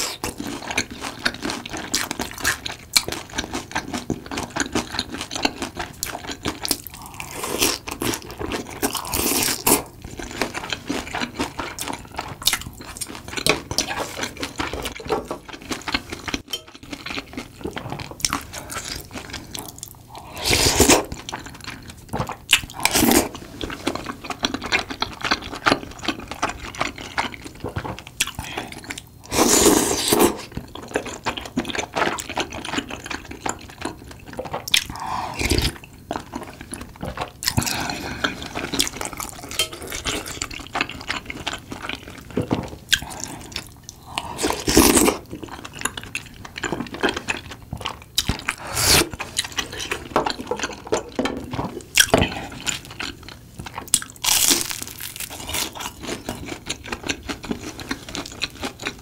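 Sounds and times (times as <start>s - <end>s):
slurping from a spoon: 29.3s - 30.5s.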